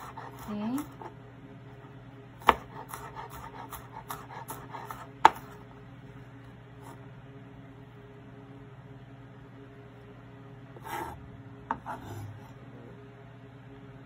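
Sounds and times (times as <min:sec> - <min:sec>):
knife chopping on cutting board: 0:00.0 - 0:01.1, 0:02.4 - 0:05.6, 0:11.7 - 0:12.3.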